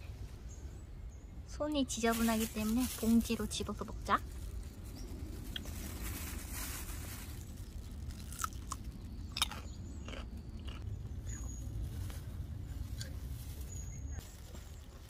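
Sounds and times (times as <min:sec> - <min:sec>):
low rumble: 0:00.0 - 0:15.0
cucumber crunching: 0:07.6 - 0:10.9.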